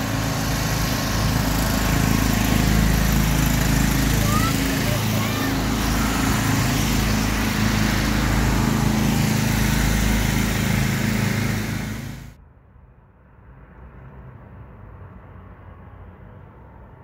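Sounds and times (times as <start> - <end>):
generator engine droning: 0.0 - 12.4.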